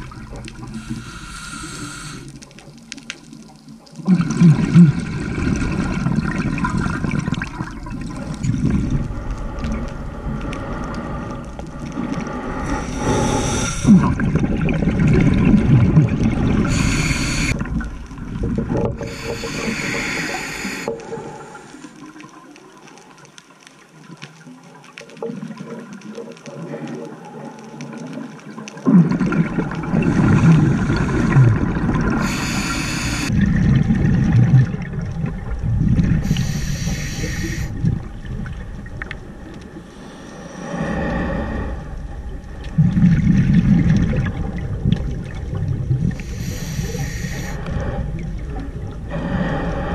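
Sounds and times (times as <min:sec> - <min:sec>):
scuba regulator inhalation hiss: 0:00.6 - 0:02.4, 0:12.6 - 0:14.1, 0:16.6 - 0:17.6, 0:19.0 - 0:22.0, 0:32.2 - 0:33.3, 0:36.2 - 0:37.8, 0:46.2 - 0:47.8
bubbly exhalations underwater: 0:03.9 - 0:22.1, 0:28.6 - 0:40.0, 0:40.8 - 0:49.9.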